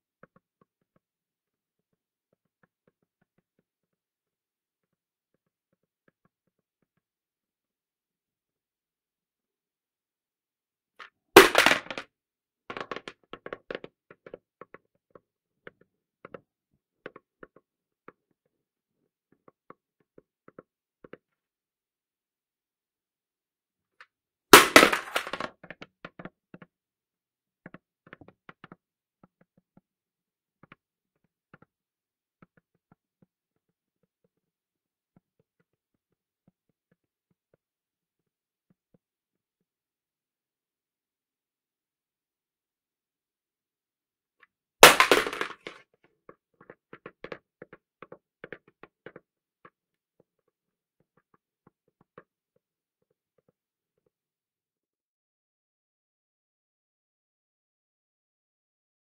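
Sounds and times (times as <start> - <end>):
hard hat dropping and bouncing: 11.0 - 12.1, 24.5 - 26.4, 44.8 - 49.8
hard hat hitting ground: 11.4 - 12.0, 24.6 - 25.6, 44.8 - 45.8.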